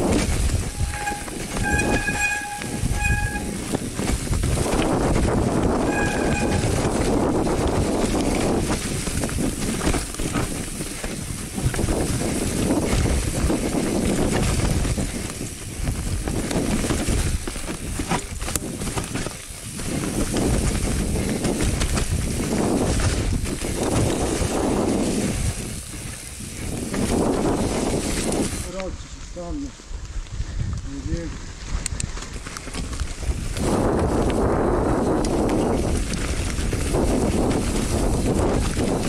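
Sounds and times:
tyres rolling over wet leaves: 0.0s - 28.7s, 32.2s - 39.0s
bike rattling over bumps: 0.0s - 39.0s
wind rushing over microphone: 0.0s - 39.0s
short squeal: 0.6s - 3.7s, 5.8s - 6.9s.

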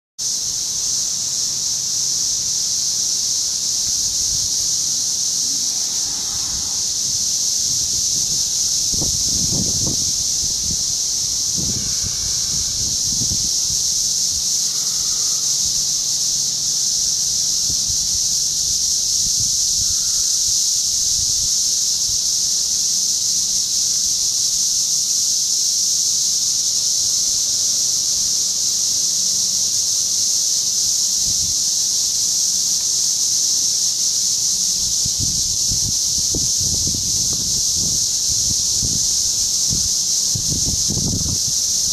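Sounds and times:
cicadas droning: 0.2s - 41.9s
wind rumble on microphone: 6.0s - 14.8s, 17.5s - 20.2s, 34.8s - 41.9s.

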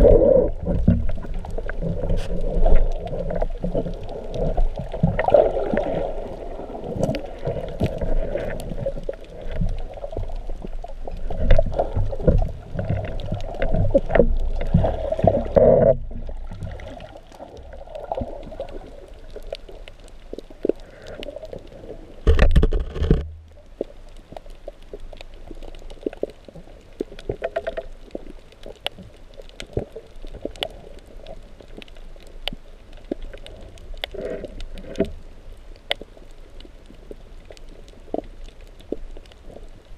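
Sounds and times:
faint underwater clicks: 0.0s - 39.9s
muffled underwater rumbling: 0.0s - 39.9s.

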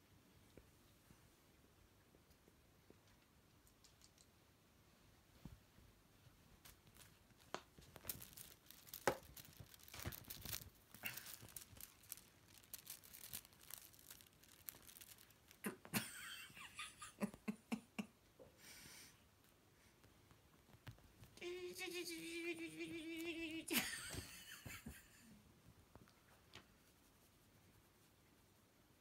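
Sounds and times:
fabric rustling: 5.3s - 15.6s.

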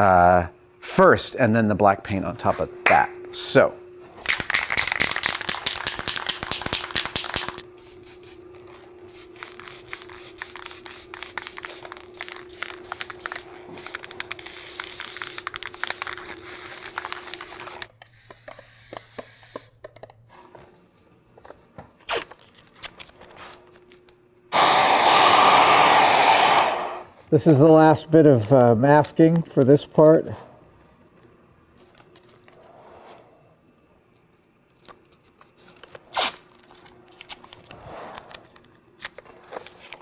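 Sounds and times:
masking tape ripping: 22.0s - 23.2s, 36.1s - 36.5s.

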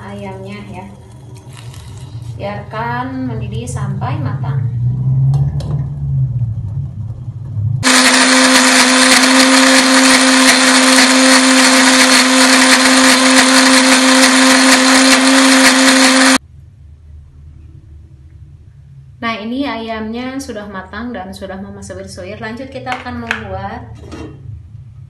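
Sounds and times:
low rumble: 0.0s - 7.8s
electric blender grinding: 7.8s - 16.4s.

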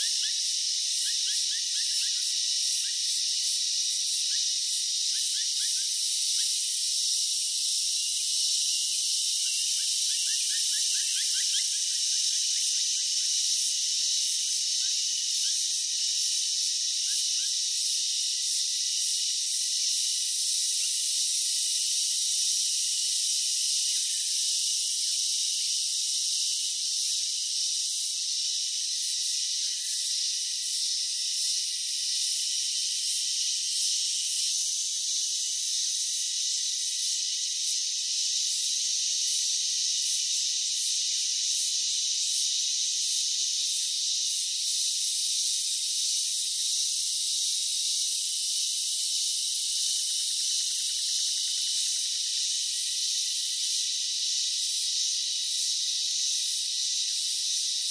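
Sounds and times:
high-pitched insect chorus: 0.0s - 57.9s.

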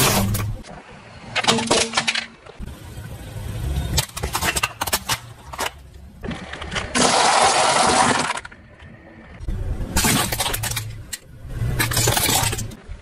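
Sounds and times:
plastic toys crushed under tyre: 0.0s - 0.6s, 1.3s - 2.4s, 4.0s - 8.8s, 9.9s - 12.8s.

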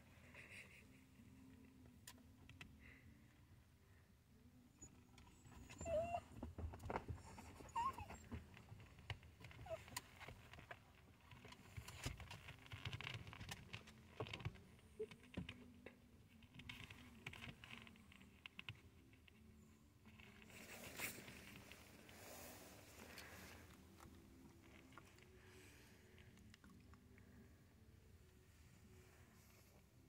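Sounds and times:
small dog whimpering: 4.7s - 10.4s
clicks and rustles: 5.2s - 27.6s.

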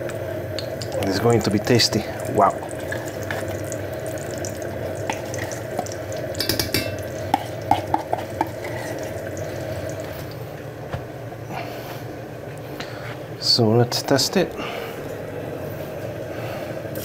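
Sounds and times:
fat sizzling in a pan: 0.5s - 10.4s
spoon tapping on a pan: 5.8s - 8.6s.

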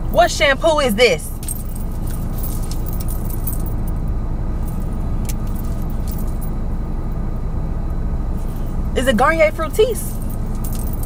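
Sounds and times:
car engine idling: 0.0s - 11.0s
jewellery jingling: 1.0s - 4.0s, 4.6s - 6.6s, 9.8s - 11.0s.

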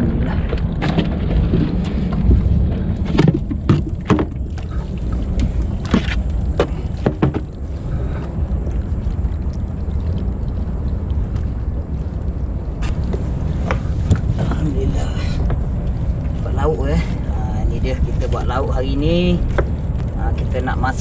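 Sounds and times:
knocks and clatter in a boat: 0.0s - 8.4s, 12.8s - 21.0s
steady low rumble: 0.0s - 21.0s.

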